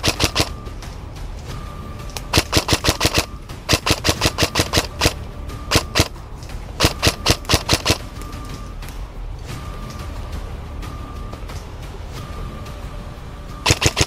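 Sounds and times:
airsoft rifle full-auto bursts: 0:00.0 - 0:00.5, 0:02.3 - 0:06.1, 0:06.8 - 0:08.0, 0:13.6 - 0:14.0.

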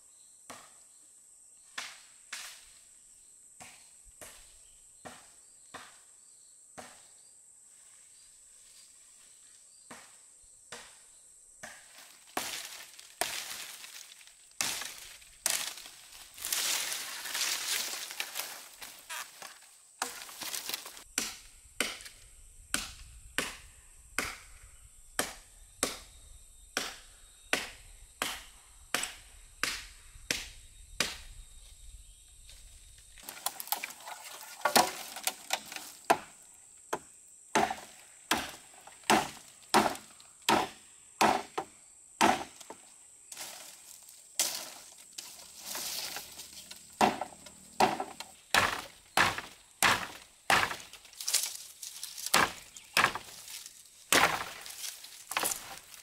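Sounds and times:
machete chopping branches: 0:09.9 - 0:11.0, 0:11.6 - 0:24.6, 0:25.2 - 0:26.2, 0:26.8 - 0:31.4, 0:33.2 - 0:56.0.

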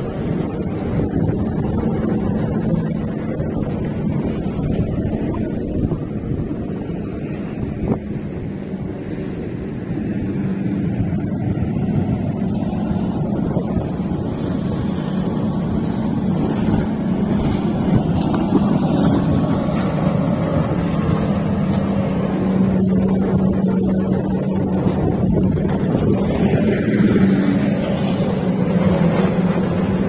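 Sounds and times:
powerboat engine humming: 0:00.0 - 0:30.0.

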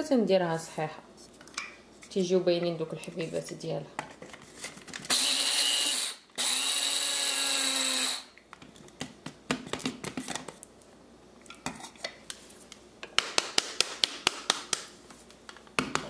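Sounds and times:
blade coffee grinder grinding seeds: 0:05.1 - 0:08.3.

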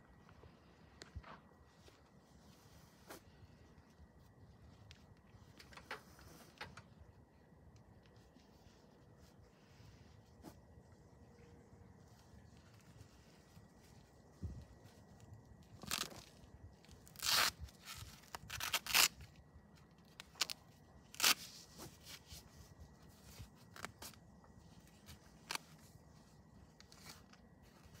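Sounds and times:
leg wrap crackling and tearing: 0:12.6 - 0:28.0.

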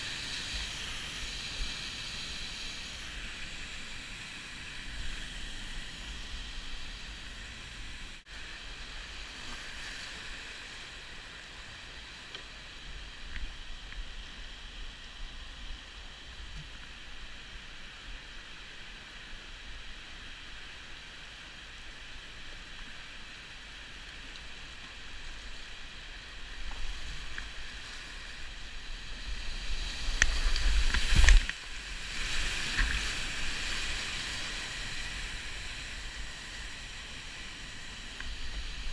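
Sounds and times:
whitewater rushing: 0:21.2 - 0:38.9
water splashing and churning: 0:22.9 - 0:38.9.

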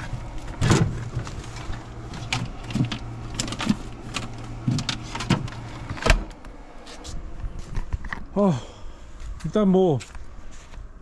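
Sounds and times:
fridge compressor hum: 0:00.0 - 0:09.5
clicks and knocks handling fridge: 0:02.1 - 0:06.4.

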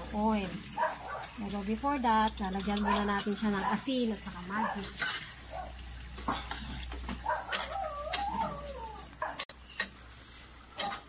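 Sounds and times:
faint sizzle in wok: 0:00.0 - 0:11.0
wavering animal whine: 0:07.2 - 0:09.2.

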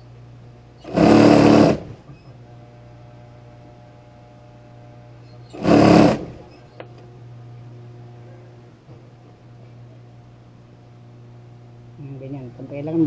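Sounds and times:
steady low hum: 0:00.0 - 0:13.0
sewing machine stitching: 0:00.8 - 0:02.0, 0:05.5 - 0:06.5.

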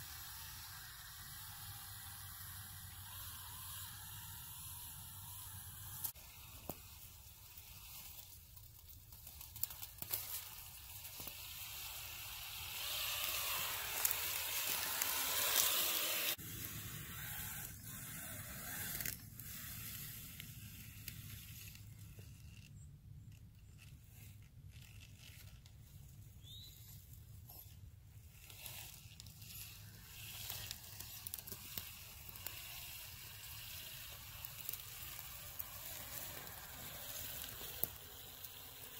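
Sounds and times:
dry grass and twigs crackling: 0:00.0 - 0:38.9
loud hissing: 0:10.2 - 0:20.7, 0:29.8 - 0:38.9.

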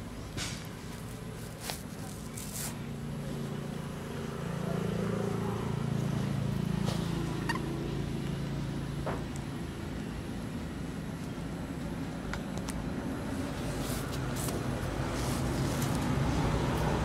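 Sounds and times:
motor engine running: 0:00.8 - 0:12.1.

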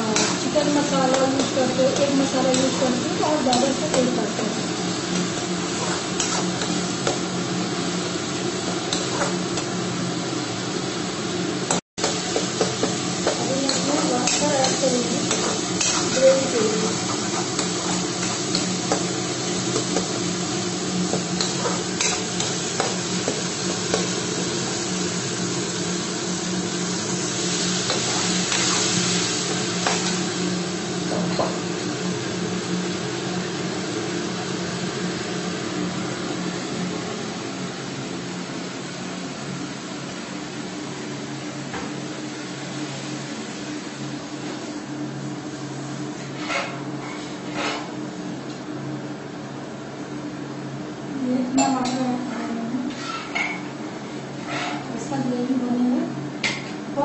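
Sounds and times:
gravy sizzling in oil: 0:00.0 - 0:48.3
spatula scraping a pan: 0:00.1 - 0:04.2, 0:05.2 - 0:07.2, 0:12.1 - 0:20.0, 0:52.9 - 0:53.3, 0:54.4 - 0:54.9.

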